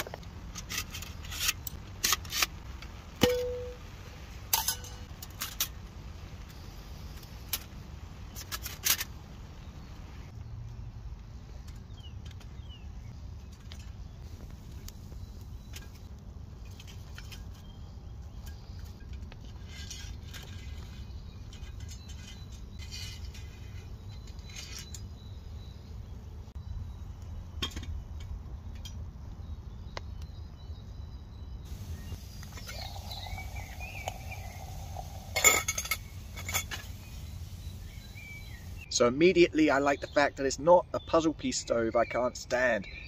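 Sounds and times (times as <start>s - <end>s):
twig fire crackling and popping: 0.0s - 3.2s, 3.8s - 22.0s, 31.7s - 38.9s
pot clinking on metal supports: 4.5s - 5.1s, 32.5s - 36.9s
low wind rumble: 25.2s - 39.0s.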